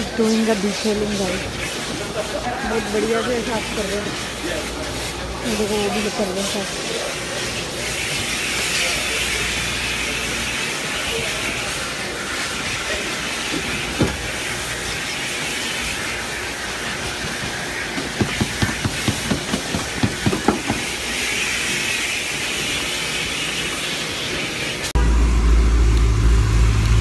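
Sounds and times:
low hum: 24.9 - 27.0.

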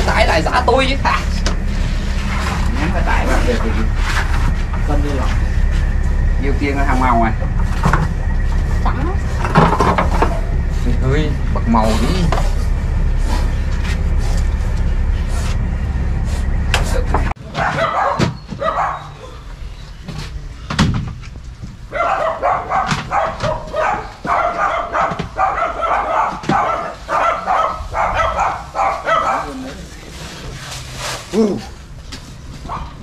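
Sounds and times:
steady low hum: 0.0 - 17.4, 18.6 - 33.0
dog barking: 17.4 - 19.4, 21.9 - 29.9, 32.6 - 33.0.

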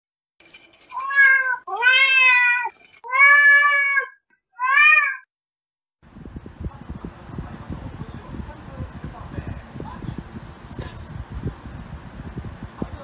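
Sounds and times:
cat meowing: 1.0 - 5.3.

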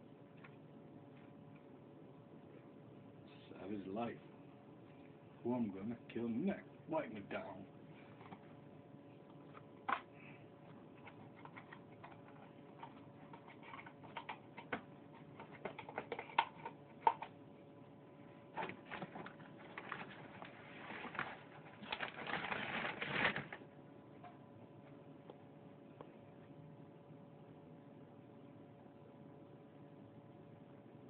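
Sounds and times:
crunching and rustling: 18.5 - 23.6.

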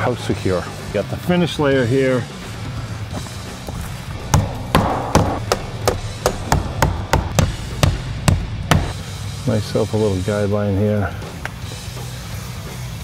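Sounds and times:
hammer striking nails: 4.3 - 9.0.

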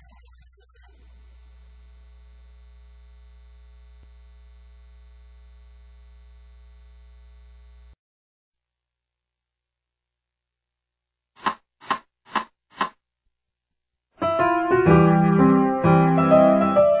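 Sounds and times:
low electrical mains buzz: 0.9 - 8.0.

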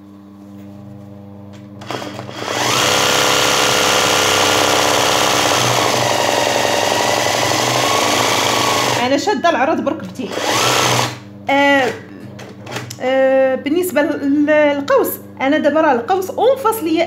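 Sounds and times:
sewing machine running fast: 1.8 - 9.0, 10.3 - 11.2.

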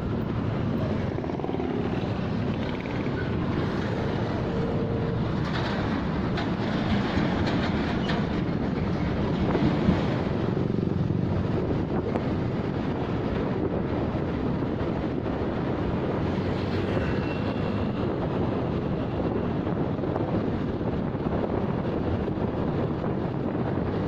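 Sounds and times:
motorcycle rumble: 0.0 - 8.1
road and traffic noise: 0.0 - 24.0
wind on microphone: 0.0 - 24.0.

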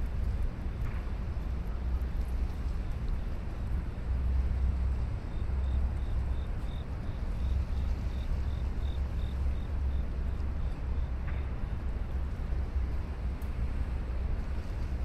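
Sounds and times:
city ambience rumble: 0.0 - 15.0.

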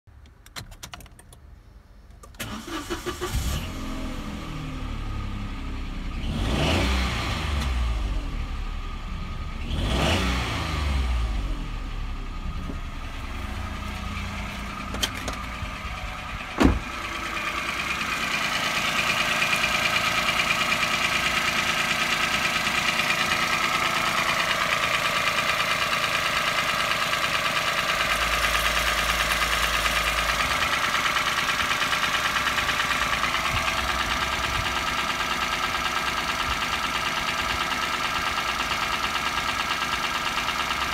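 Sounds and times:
car engine starting and idling: 0.1 - 40.9
sharp thump: 16.6 - 17.0.

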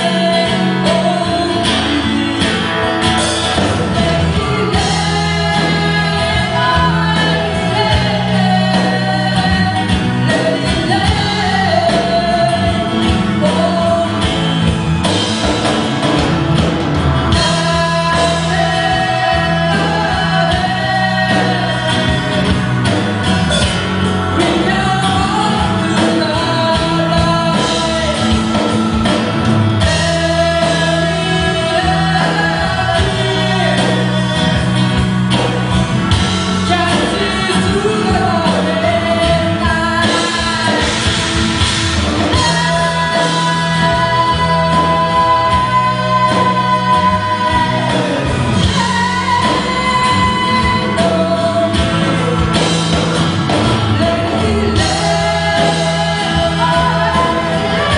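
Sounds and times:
acoustic guitar: 0.0 - 57.9
bass guitar: 0.0 - 57.9
drums: 0.0 - 57.9
keyboard: 0.0 - 57.9
woman singing lead: 0.0 - 57.9.

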